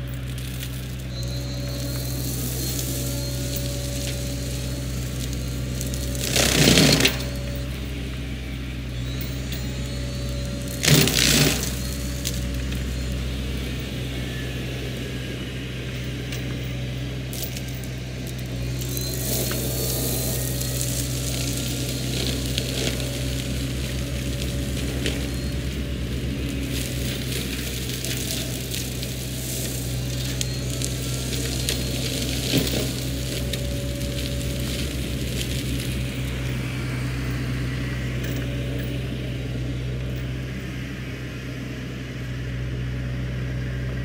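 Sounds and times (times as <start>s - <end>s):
flail mulcher cutting brush: 0.0s - 40.7s
excavator diesel engine: 0.0s - 44.0s.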